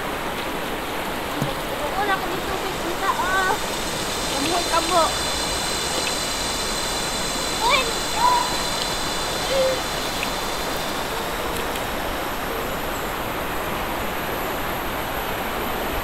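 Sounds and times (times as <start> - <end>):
river rushing over rocks: 0.0 - 16.0
brief pitched calls: 7.0 - 10.8.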